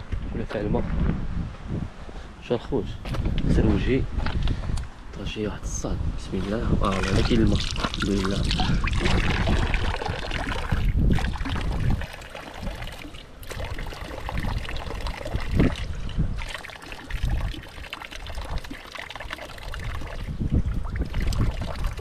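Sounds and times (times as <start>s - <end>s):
water trickling and pouring: 6.3s - 22.0s.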